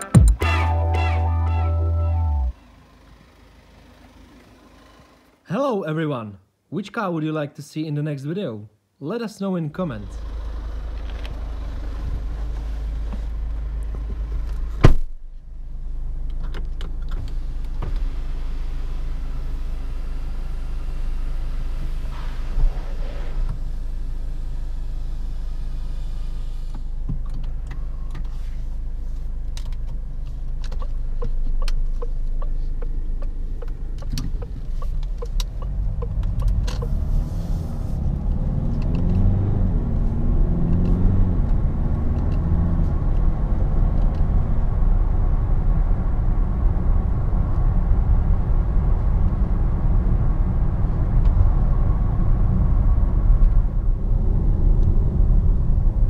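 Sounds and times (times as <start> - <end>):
low hum: 0.0 - 5.0
car engine accelerating: 0.0 - 5.4, 10.0 - 14.9, 15.6 - 56.0
road noise: 0.0 - 6.7, 9.7 - 56.0.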